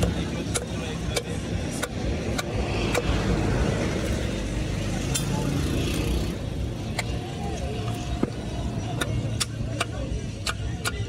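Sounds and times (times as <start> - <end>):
steady low rumble: 0.8 - 5.6.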